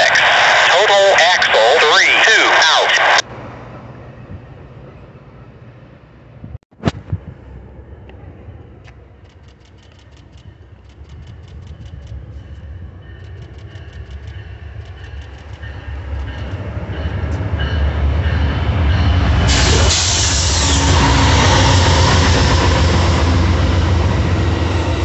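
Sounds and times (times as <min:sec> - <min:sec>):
rush of train wheels and wind: 0:00.0 - 0:25.0
locomotive engine rumble: 0:03.3 - 0:25.0
faint rapid ticking: 0:09.2 - 0:12.3, 0:13.2 - 0:16.5.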